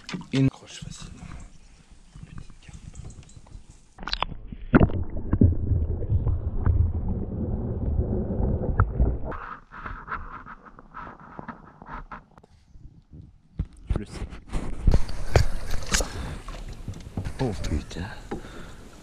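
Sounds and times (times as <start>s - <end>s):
light underwater clicks and splashes: 0.0s - 7.1s, 14.8s - 19.0s
muffled underwater rumble and gurgling: 4.9s - 9.4s.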